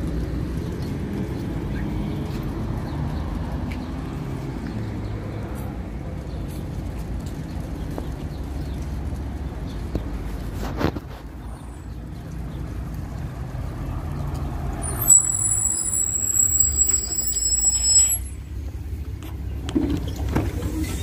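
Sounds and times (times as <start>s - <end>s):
bus engine rumble: 0.0s - 21.0s
brake squeal: 14.7s - 18.6s, 20.0s - 21.0s
air brakes hissing: 14.9s - 18.4s.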